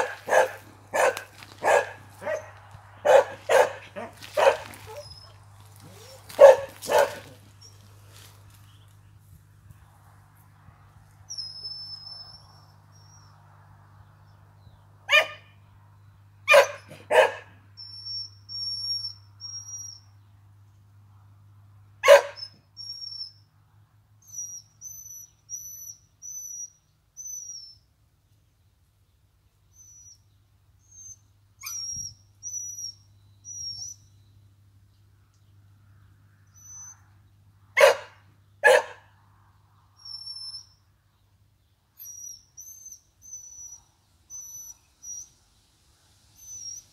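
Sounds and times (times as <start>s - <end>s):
dog barking: 0.0s - 5.1s, 5.9s - 7.4s, 15.1s - 15.5s, 16.5s - 17.6s, 22.0s - 22.5s, 37.8s - 39.1s.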